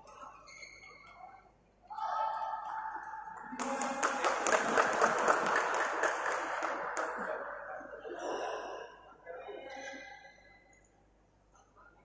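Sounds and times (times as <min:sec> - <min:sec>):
spectators clapping: 0:03.4 - 0:07.4.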